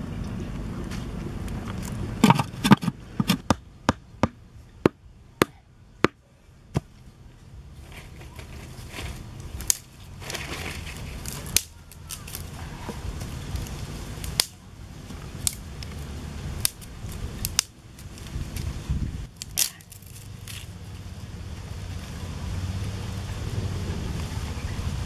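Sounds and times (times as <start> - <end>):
wooden sticks knocking and snapping: 0.9 - 7.0, 7.9 - 16.0, 16.6 - 18.7, 19.3 - 20.7
rustling of sticks and dry leaves: 6.0 - 25.0.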